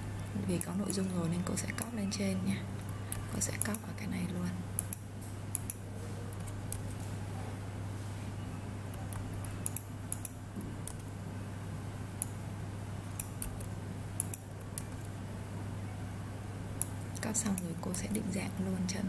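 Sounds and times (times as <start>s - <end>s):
steady low hum: 0.0s - 19.0s
mouse and keyboard clicks: 8.9s - 11.1s.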